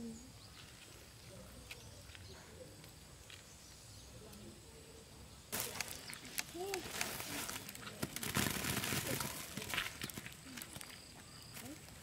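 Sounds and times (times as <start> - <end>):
plastic sheet crinkling: 5.5 - 10.9.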